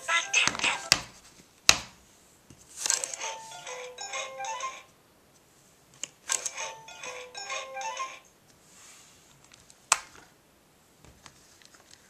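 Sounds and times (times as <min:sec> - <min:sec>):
electronic toy jingle: 0:03.1 - 0:04.9, 0:06.5 - 0:08.3.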